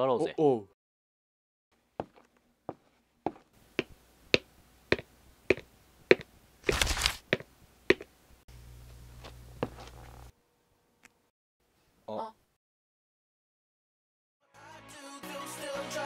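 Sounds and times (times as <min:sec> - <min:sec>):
footsteps on a hard floor: 0:02.0 - 0:08.1, 0:09.2 - 0:10.0
low steady hum: 0:07.6 - 0:11.2.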